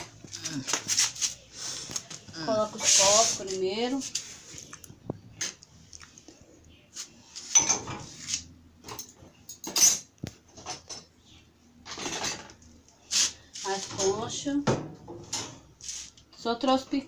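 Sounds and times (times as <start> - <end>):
dishes clinking in dishwasher rack: 7.5 - 8.1, 8.8 - 11.1.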